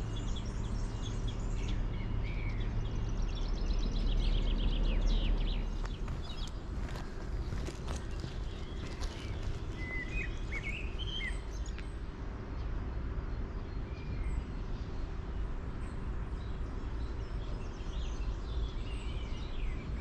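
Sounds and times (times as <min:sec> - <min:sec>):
birds chirping: 0:00.0 - 0:20.0
low outdoor rumble: 0:00.0 - 0:20.0.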